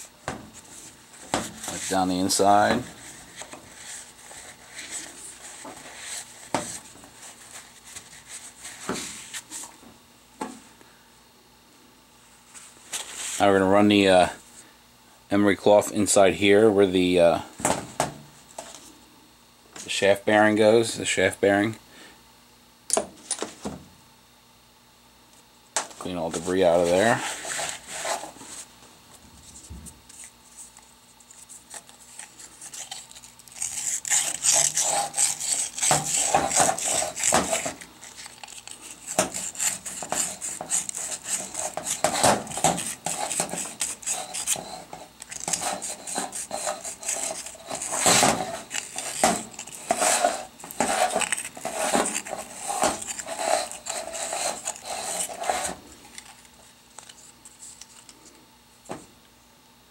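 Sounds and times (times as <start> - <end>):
emery cloth scraping metal bore: 32.2 - 56.3.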